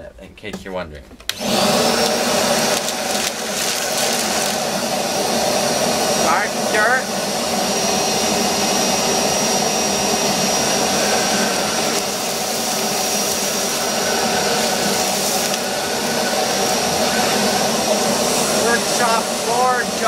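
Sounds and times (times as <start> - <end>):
shop vacuum running with whine: 1.3 - 20.0
vacuum sucking up gravel: 1.3 - 20.0.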